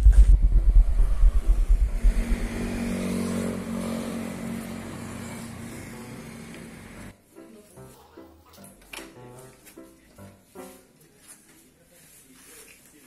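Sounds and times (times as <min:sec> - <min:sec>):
vehicle engine passing: 0:00.0 - 0:07.1.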